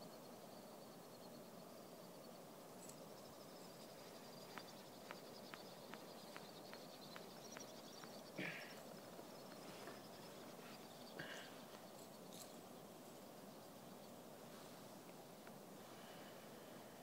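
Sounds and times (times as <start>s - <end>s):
faint evenly spaced ticks: 0.0s - 16.9s
rustle: 0.0s - 17.0s.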